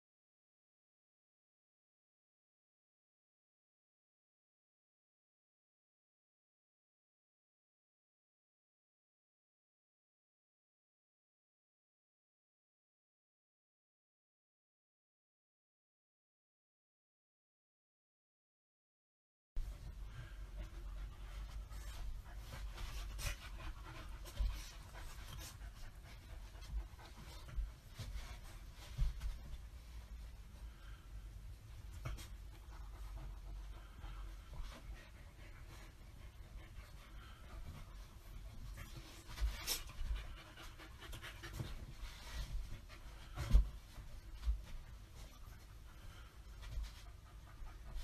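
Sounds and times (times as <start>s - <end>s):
dog panting: 19.6s - 48.0s.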